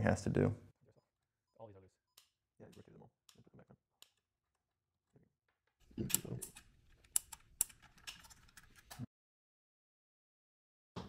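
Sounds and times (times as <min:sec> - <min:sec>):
plastic parts clicking and rattling: 0:05.8 - 0:09.1.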